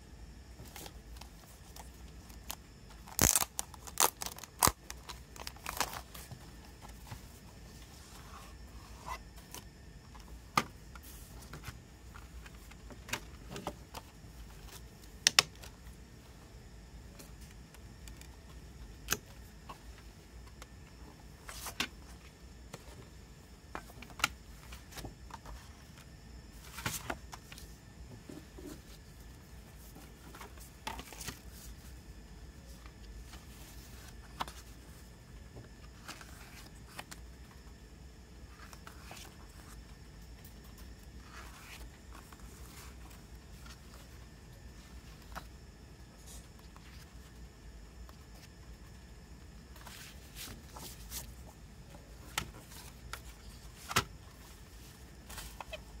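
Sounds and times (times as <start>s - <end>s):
paper rustling: 49.7s - 51.4s.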